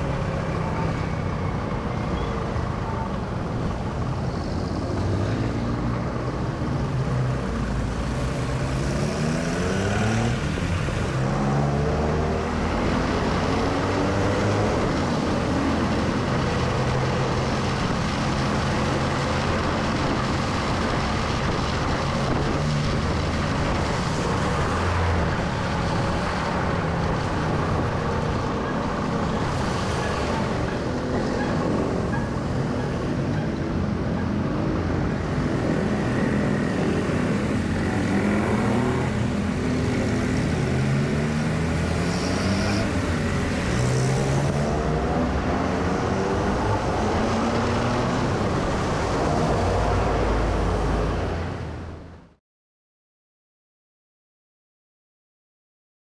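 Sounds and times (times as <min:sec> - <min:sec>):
tyres hissing on wet road: 0:04.1 - 0:32.6.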